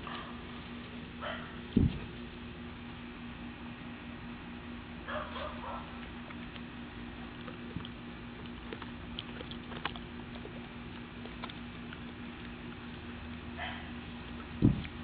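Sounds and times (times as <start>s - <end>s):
dog chewing an orange: 0.0s - 15.0s
steady background hum: 0.0s - 15.0s.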